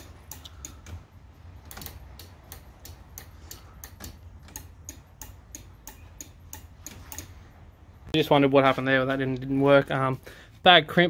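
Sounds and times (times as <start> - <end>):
turn signal ticking: 0.0 - 8.2.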